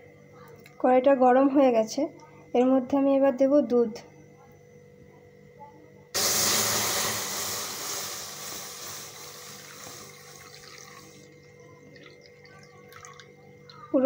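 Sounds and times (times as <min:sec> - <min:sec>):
milk hissing in hot pan: 0:06.2 - 0:11.5.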